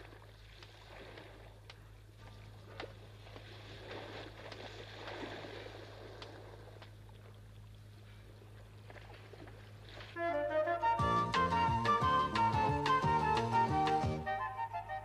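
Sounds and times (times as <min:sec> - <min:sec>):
water lapping against hull: 0:00.0 - 0:10.9.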